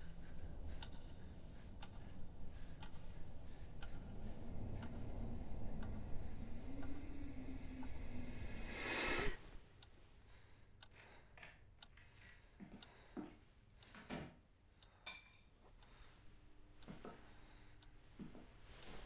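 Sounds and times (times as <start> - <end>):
rising whoosh: 3.3 - 9.5.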